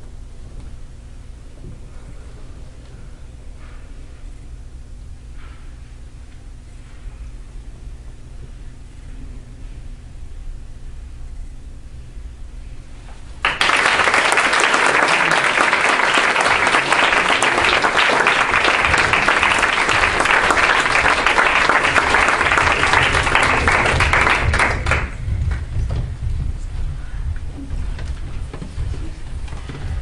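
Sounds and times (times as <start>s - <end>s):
audience applause: 13.4s - 25.7s.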